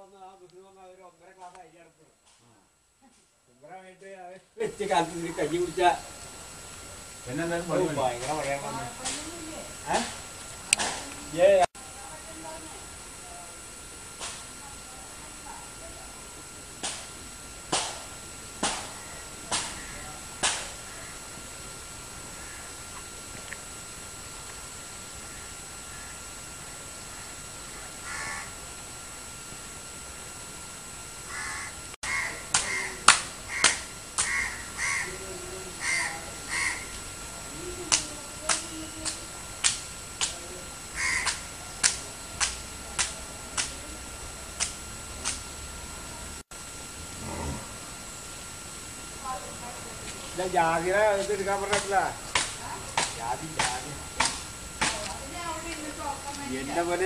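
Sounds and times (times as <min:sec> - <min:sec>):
crows cawing: 0:18.9 - 0:21.3, 0:22.3 - 0:23.0, 0:25.2 - 0:26.2, 0:28.0 - 0:28.6, 0:31.3 - 0:35.2, 0:35.8 - 0:37.0, 0:40.9 - 0:41.4
steady sharp clicks: 0:44.6 - 0:45.4, 0:51.6 - 0:56.5.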